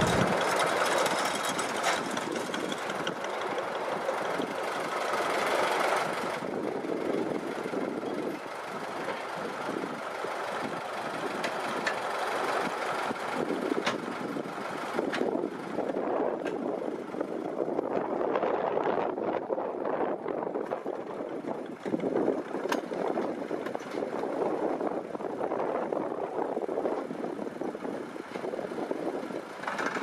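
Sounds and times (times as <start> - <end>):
dredge mechanical clatter: 0.0 - 4.6.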